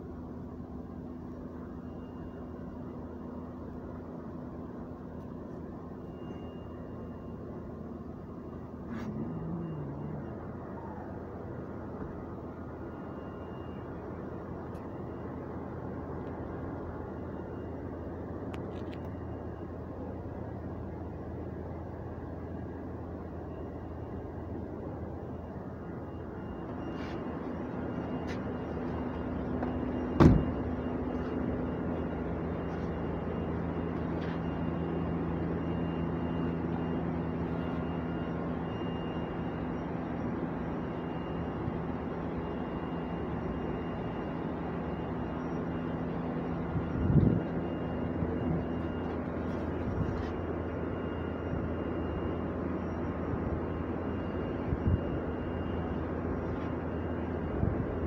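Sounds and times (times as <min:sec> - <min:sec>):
car engine idling: 0:00.0 - 0:58.0
engine knocks: 0:29.6 - 0:30.7.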